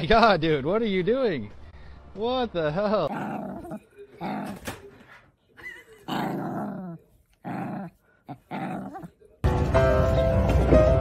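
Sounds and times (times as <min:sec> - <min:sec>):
small dog growling in play: 0:03.1 - 0:04.8, 0:06.0 - 0:09.2.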